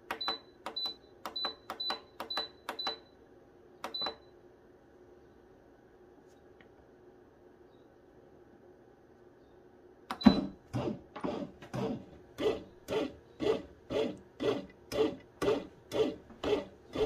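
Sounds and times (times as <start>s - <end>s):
bread machine motor pulsing: 10.7s - 17.0s.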